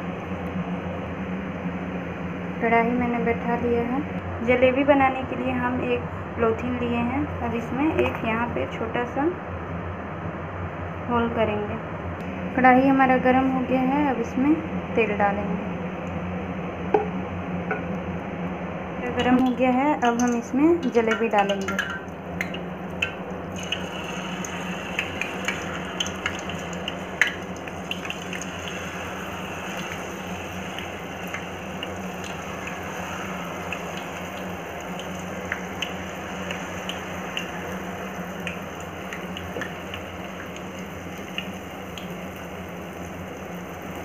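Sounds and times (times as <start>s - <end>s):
low steady hum: 0.0s - 44.0s
batter sizzling in hot oil: 20.2s - 44.0s.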